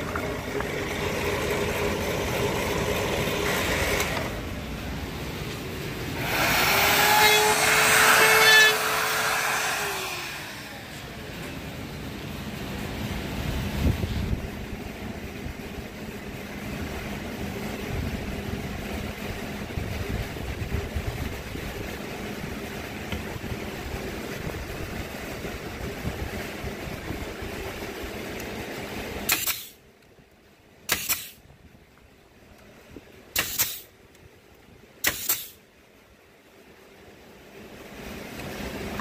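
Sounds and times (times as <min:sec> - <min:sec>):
shop fans whirring: 0:00.0 - 0:39.0
pneumatic nailer shots: 0:29.2 - 0:29.8, 0:30.8 - 0:31.4, 0:33.3 - 0:33.9, 0:35.0 - 0:35.6.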